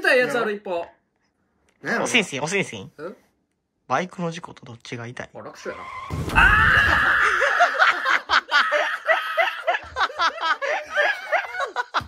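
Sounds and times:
person laughing in rapid bursts: 6.7s - 12.0s.

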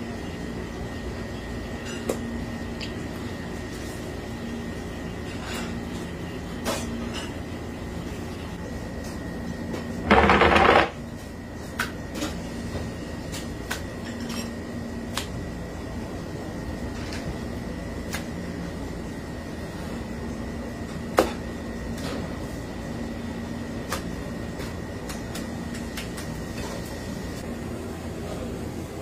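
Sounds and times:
kitchen hum: 0.0s - 29.0s
wooden board scraping on worktop: 10.1s - 10.9s.

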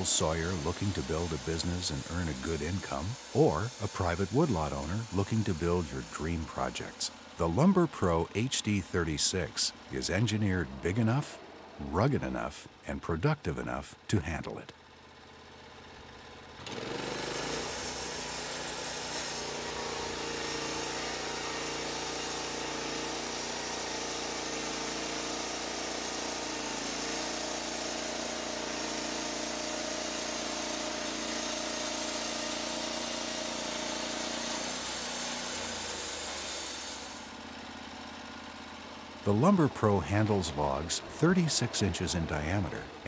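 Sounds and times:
band saw blade cutting wood: 0.0s - 11.4s, 16.6s - 37.4s
sawmill engine humming: 0.0s - 43.0s.

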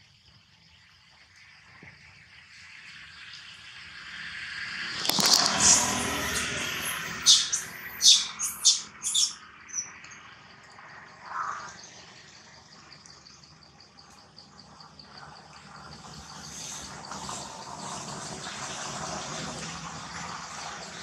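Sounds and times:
insect trill: 0.0s - 21.0s
sharp high chirping calls: 5.2s - 10.0s.

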